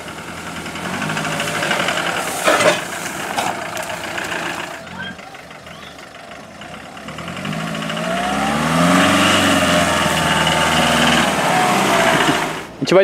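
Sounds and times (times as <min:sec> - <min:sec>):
car engine accelerating: 0:00.0 - 0:13.0.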